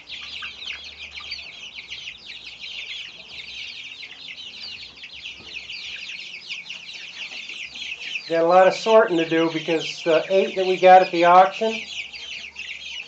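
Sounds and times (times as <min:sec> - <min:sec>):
chicks peeping: 0:00.0 - 0:13.0.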